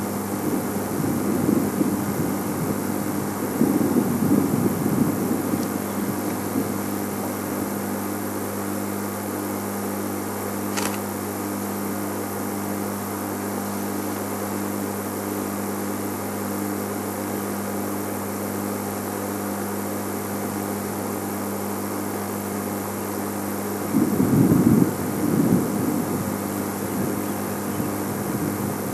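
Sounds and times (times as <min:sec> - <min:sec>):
vehicle engine idling hum: 0:00.0 - 0:17.6, 0:25.0 - 0:28.9
sharp click: 0:10.7 - 0:11.1.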